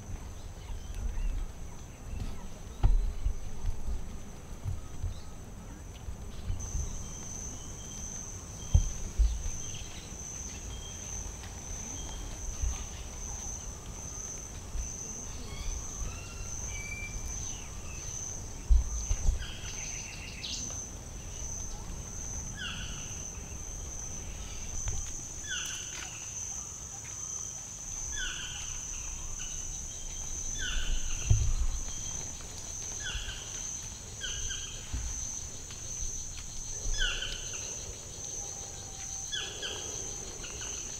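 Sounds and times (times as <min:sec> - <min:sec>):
low thumps on microphone: 0:02.2 - 0:05.2, 0:08.6 - 0:09.6, 0:18.7 - 0:19.5, 0:30.8 - 0:32.0.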